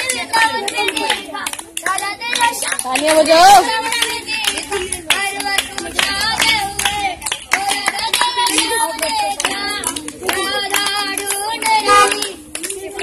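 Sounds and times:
children clapping hands: 0:00.0 - 0:13.0
children singing: 0:03.4 - 0:13.0.

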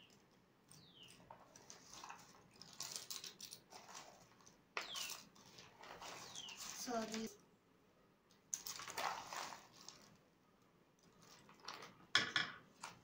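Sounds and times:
bird chirps: 0:06.2 - 0:06.8.

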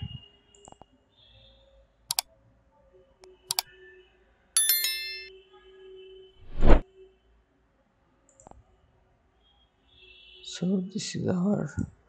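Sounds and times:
bell-like notification chime: 0:04.6 - 0:05.3.

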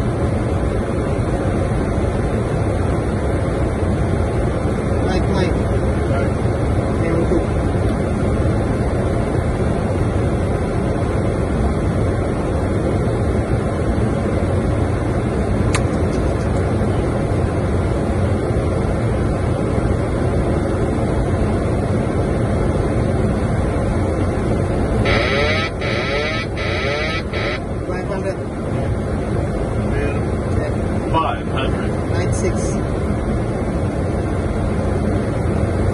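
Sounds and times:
airflow and engine noise: 0:00.0 - 0:35.9
pitched electronic sound: 0:25.0 - 0:27.6.

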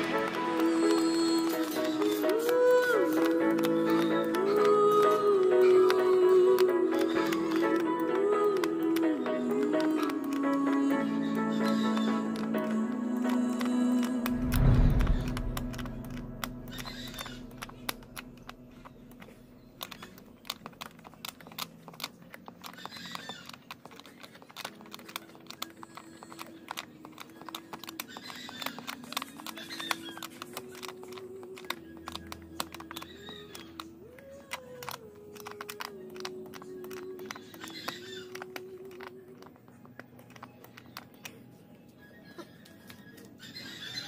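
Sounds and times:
quiet background music: 0:00.0 - 0:44.0
clicks and taps on plastic: 0:15.6 - 0:41.5.

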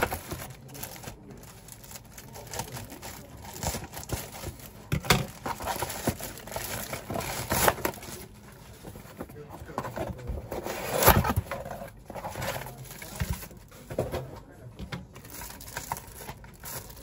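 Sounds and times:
plastic wrapper crinkling and tearing: 0:00.0 - 0:08.9, 0:15.2 - 0:17.0.

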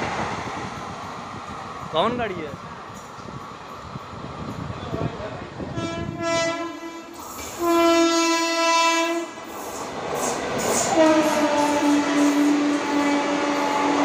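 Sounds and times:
passing train rumble and clatter: 0:00.0 - 0:14.0
locomotive horn blasts: 0:05.7 - 0:09.3, 0:10.9 - 0:14.0.

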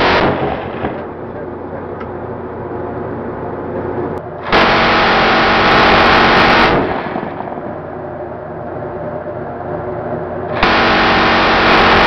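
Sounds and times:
minigun firing bursts: 0:00.0 - 0:01.0, 0:04.4 - 0:07.7, 0:10.5 - 0:12.0
ship noise: 0:00.0 - 0:12.0
wind: 0:00.0 - 0:12.0.

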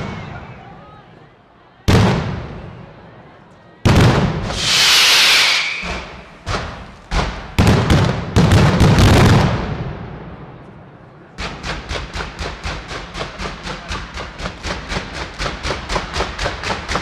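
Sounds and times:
fireworks bangs: 0:01.9 - 0:02.9, 0:03.8 - 0:17.0
high firework hiss: 0:04.3 - 0:07.5.

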